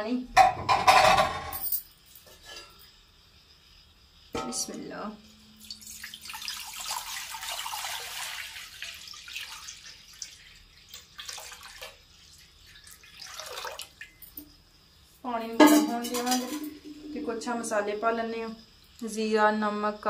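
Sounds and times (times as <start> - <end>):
water pouring into metal pan: 5.5 - 14.4, 15.6 - 17.7.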